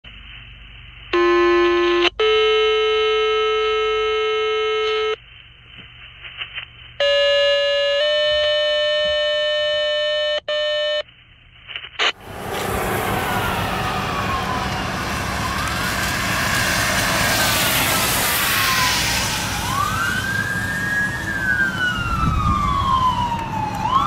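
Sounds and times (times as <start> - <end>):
radio hiss: 0.1 - 1.2, 5.2 - 7.0
two-tone radio paging tones: 6.3 - 11.1
traffic noise: 12.1 - 24.0.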